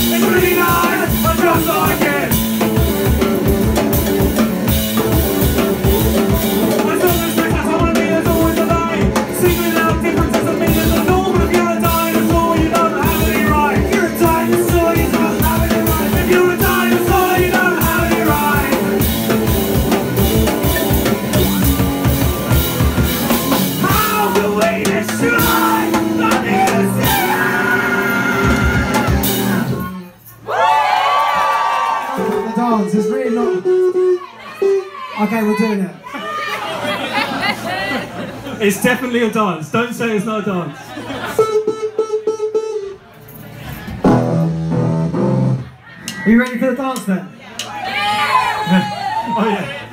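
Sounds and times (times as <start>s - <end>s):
drum kit: 0.0s - 30.0s, 43.9s - 46.3s
electric guitars: 0.0s - 30.0s
person singing: 6.7s - 19.3s, 23.2s - 29.8s.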